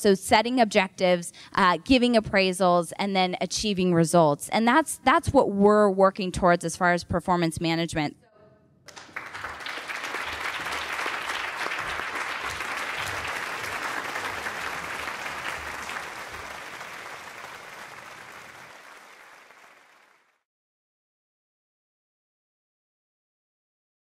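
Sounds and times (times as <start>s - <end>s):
audience applauding: 8.9s - 20.4s.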